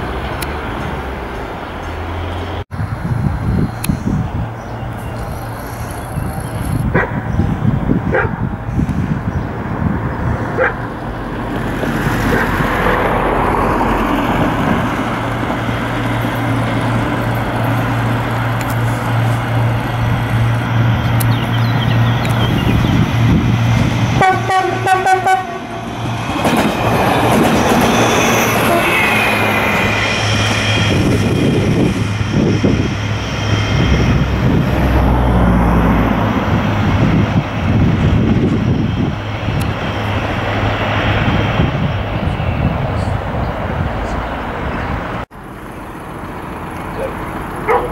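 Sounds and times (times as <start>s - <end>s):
road and track noise: 0.0s - 47.9s
train engine humming: 0.0s - 47.9s
train horn blast: 24.1s - 25.9s, 28.4s - 29.6s.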